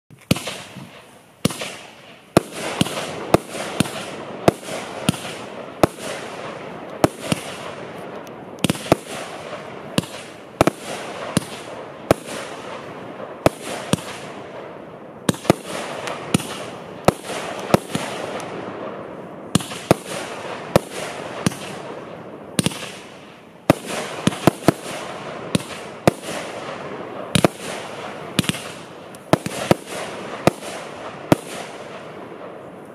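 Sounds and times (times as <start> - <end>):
crackling of firework stars: 0.1 - 32.9
firework bangs: 0.2 - 32.9.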